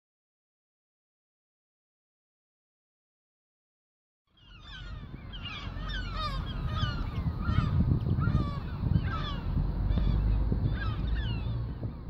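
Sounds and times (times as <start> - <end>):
gulls calling: 4.3 - 12.0
steady low rumble: 4.5 - 12.0.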